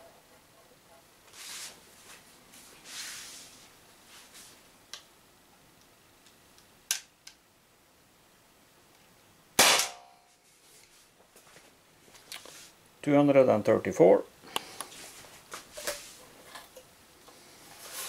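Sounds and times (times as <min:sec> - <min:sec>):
air pistol shot: 0:09.6 - 0:10.1.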